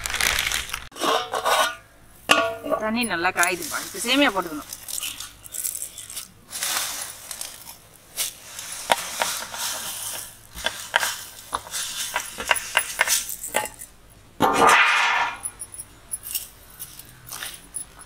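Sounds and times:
dry noodles rustling and clicking: 0.0s - 0.9s, 3.4s - 13.8s.

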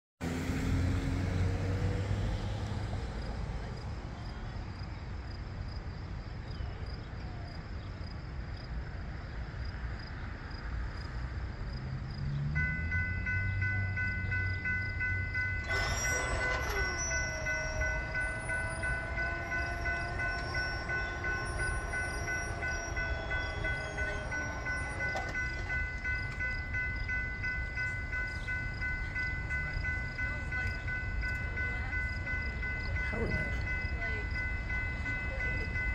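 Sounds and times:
diesel locomotive rumble: 0.2s - 35.9s
crossing warning bell ringing: 12.0s - 35.9s
wavering whine of crossing gate: 12.6s - 35.9s
crossing gate clunk: 15.4s - 29.8s.

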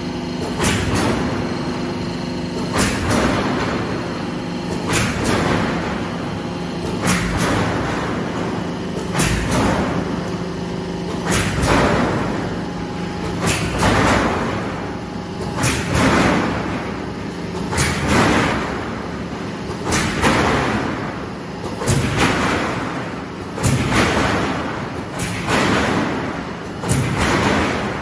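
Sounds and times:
machine low hum: 0.0s - 28.0s
sharp machine clank: 11.1s - 19.0s, 19.8s - 28.0s.

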